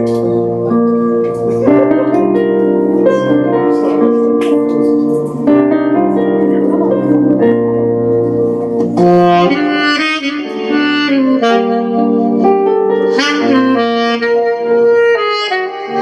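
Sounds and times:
live band playing: 0:00.0 - 0:16.0
saxophone ballad melody: 0:00.0 - 0:16.0.

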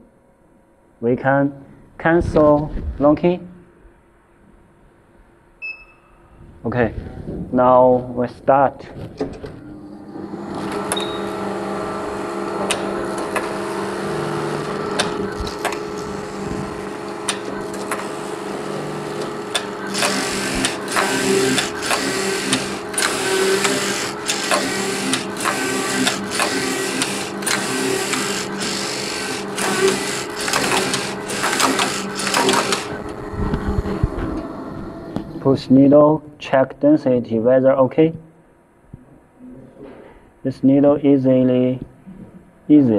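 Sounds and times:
knitting machine humming: 0:09.7 - 0:35.4
regular mechanical clatter: 0:19.2 - 0:34.2.

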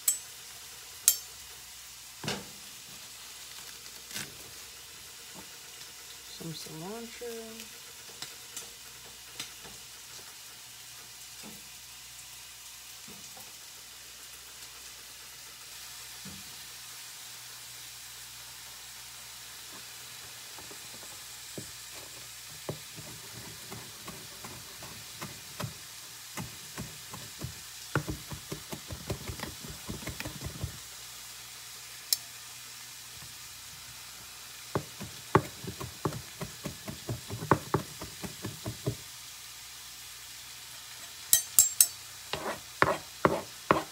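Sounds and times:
food frying sizzle: 0:00.0 - 0:43.9
knife chopping on cutting board: 0:21.6 - 0:25.8, 0:26.4 - 0:30.8, 0:34.8 - 0:39.0, 0:42.4 - 0:43.9.

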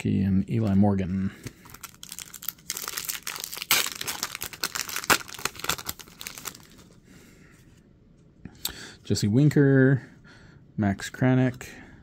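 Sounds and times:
foil wrapper tearing and crinkling: 0:01.6 - 0:06.9.

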